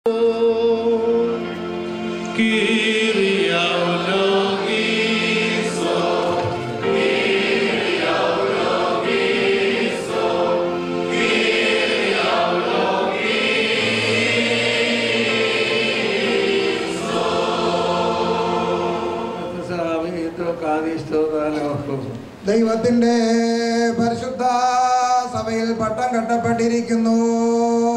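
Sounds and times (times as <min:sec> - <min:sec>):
choir singing chant: 0:00.1 - 0:20.0.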